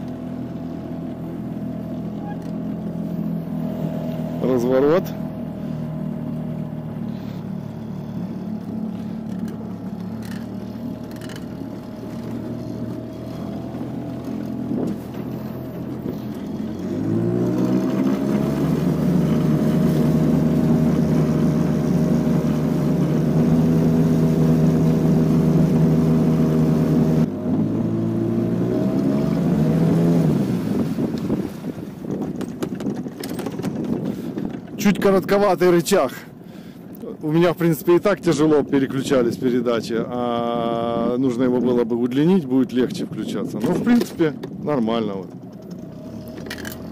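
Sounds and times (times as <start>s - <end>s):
outboard motor running: 0.0s - 46.9s.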